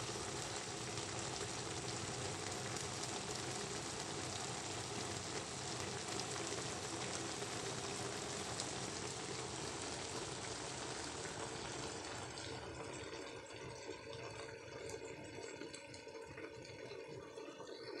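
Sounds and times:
broth bubbling and sizzling: 0.0s - 18.0s.

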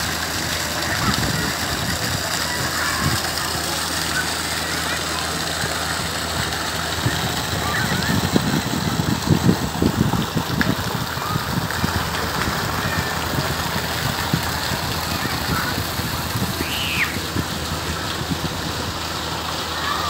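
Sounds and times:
park background noise: 0.0s - 20.0s
wind buffeting microphone: 0.8s - 3.5s, 5.9s - 19.2s.

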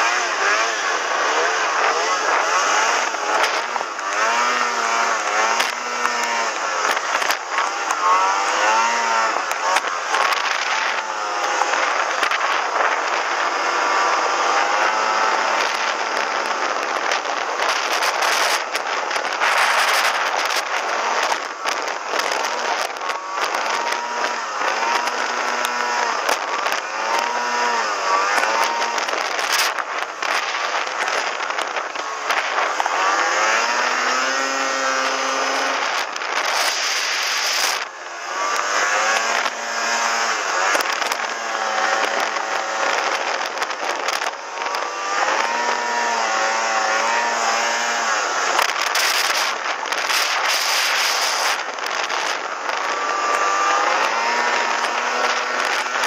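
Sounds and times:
snowmobile engine revving: 0.0s - 56.0s
steady rushing hiss: 0.0s - 56.0s.

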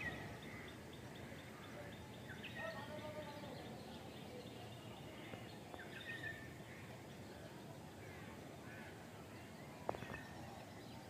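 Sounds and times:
bird chirps: 0.0s - 6.5s.

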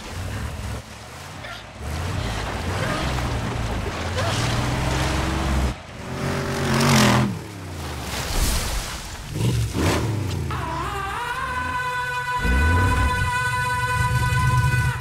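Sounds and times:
buggy engine running: 0.0s - 7.6s
engine revving: 1.6s - 7.6s, 9.3s - 10.8s.

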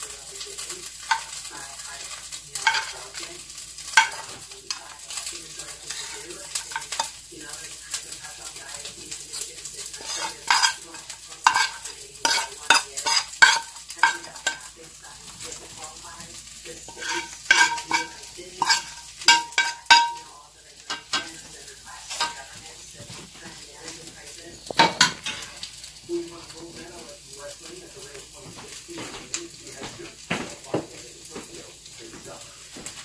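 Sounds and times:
spoon scraping clay bowl: 2.6s - 2.9s, 5.9s - 7.1s, 10.0s - 14.7s, 16.9s - 20.2s.

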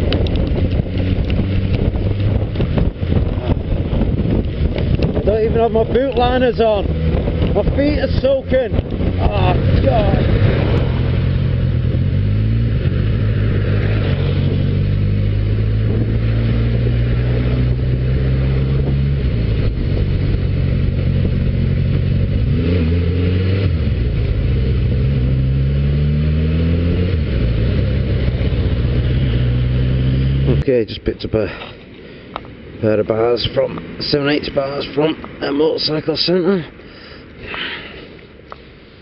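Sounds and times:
motorcycle engine revving: 0.0s - 30.7s
wet road noise: 0.0s - 39.0s
wind: 0.0s - 39.0s.

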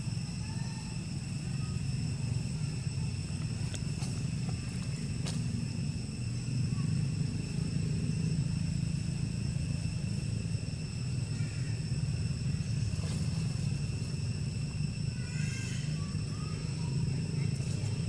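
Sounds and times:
faint chirps: 11.0s - 18.0s.

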